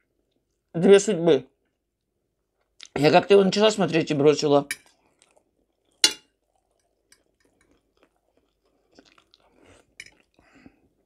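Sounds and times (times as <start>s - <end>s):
person chewing food: 4.8s - 11.0s.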